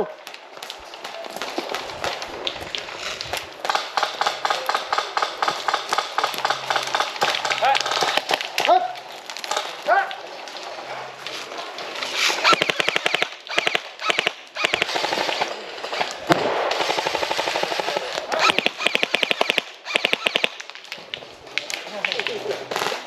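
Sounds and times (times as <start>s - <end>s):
airsoft rifles firing bursts: 3.6s - 8.6s, 12.3s - 20.7s, 22.7s - 23.0s.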